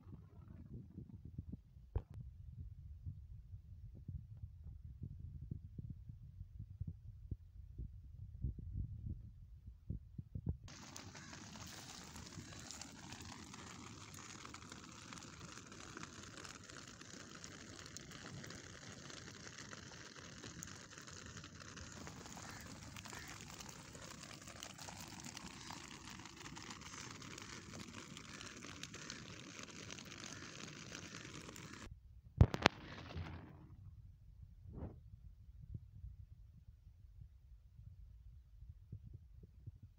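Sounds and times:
light rain on wet stones: 10.7s - 31.9s.

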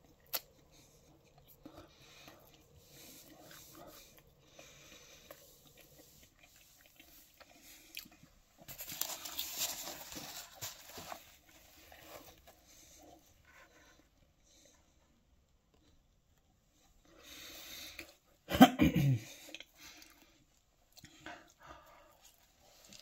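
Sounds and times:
person chewing food: 0.0s - 18.3s, 19.4s - 23.0s
rustling and handling noise: 0.1s - 17.1s.

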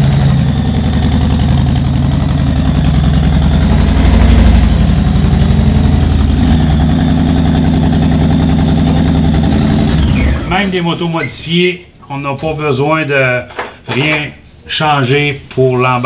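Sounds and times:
motorcycle engine idling: 0.0s - 10.5s.

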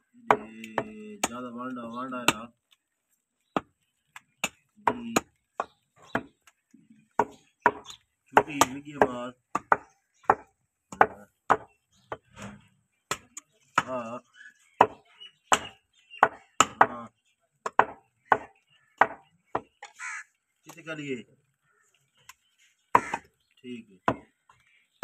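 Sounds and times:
cleaver chopping meat on wood: 0.2s - 1.5s, 3.5s - 12.3s, 13.1s - 14.0s, 14.8s - 19.9s, 22.9s - 23.3s, 24.0s - 24.4s.

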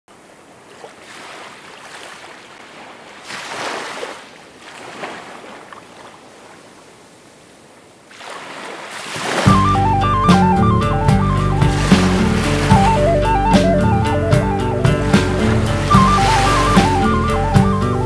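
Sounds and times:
ocean surf washing onto beach: 0.1s - 18.0s.

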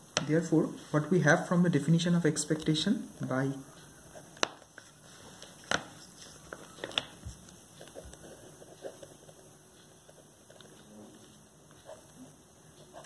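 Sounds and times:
pen scratching on paper: 7.8s - 10.8s, 11.8s - 13.0s.

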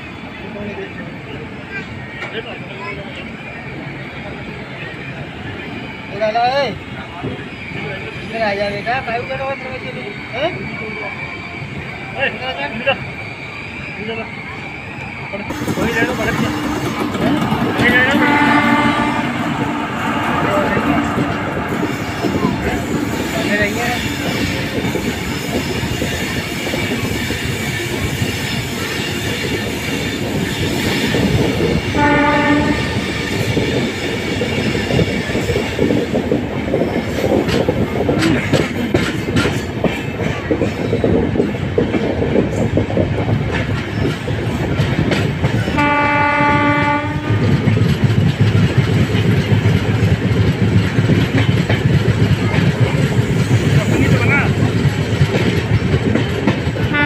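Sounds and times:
train rumble and wheel noise: 0.0s - 57.0s
locomotive horn blasts: 18.0s - 21.6s, 32.0s - 33.1s, 45.8s - 47.6s.

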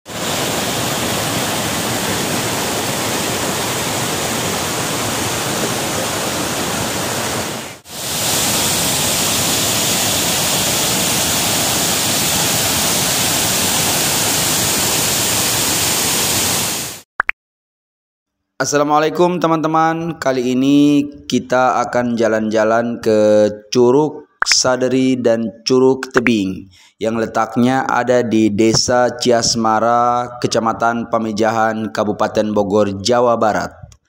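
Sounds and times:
waterfall rushing over rock: 0.1s - 17.0s.

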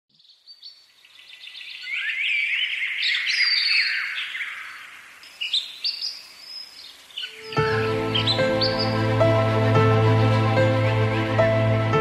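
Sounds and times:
small birds chirping: 0.1s - 9.6s.

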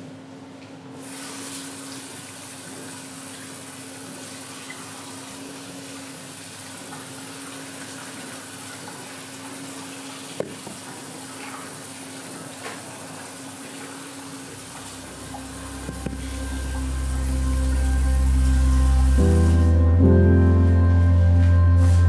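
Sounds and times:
water running from tap: 1.0s - 19.7s
low hum: 14.7s - 22.0s.

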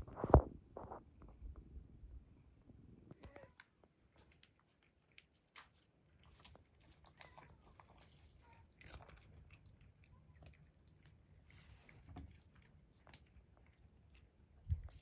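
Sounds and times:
faint small clicks and rustles: 3.1s - 15.0s.

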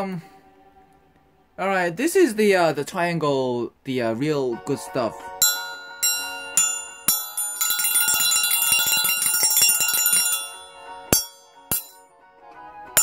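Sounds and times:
triangle ringing: 5.4s - 12.0s.

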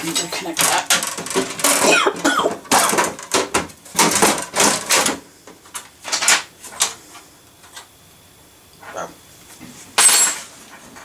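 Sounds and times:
metal parts knocking and scraping: 0.0s - 5.2s.

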